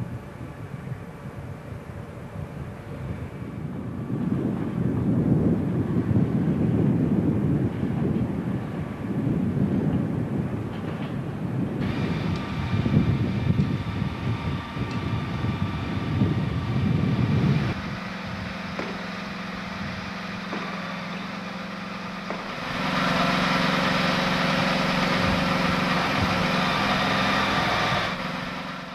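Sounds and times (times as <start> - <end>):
diesel locomotive engine running: 0.0 - 28.9.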